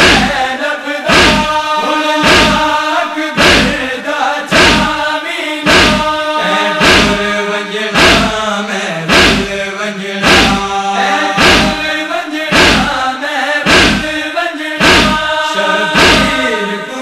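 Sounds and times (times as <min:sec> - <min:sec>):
chest-beating thumps: 0:00.0 - 0:00.4, 0:01.1 - 0:02.8, 0:03.4 - 0:03.8, 0:04.5 - 0:05.0, 0:05.7 - 0:07.3, 0:08.0 - 0:08.4, 0:09.1 - 0:09.6, 0:10.2 - 0:10.7, 0:11.3 - 0:11.9, 0:12.5 - 0:13.0, 0:13.6 - 0:14.2, 0:14.8 - 0:16.5
men chanting in unison: 0:00.0 - 0:17.0.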